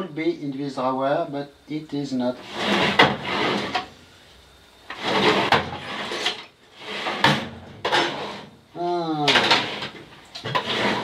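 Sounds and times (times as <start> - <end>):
drawer sliding open and shut: 2.4 - 3.9, 4.9 - 8.6, 9.2 - 11.0.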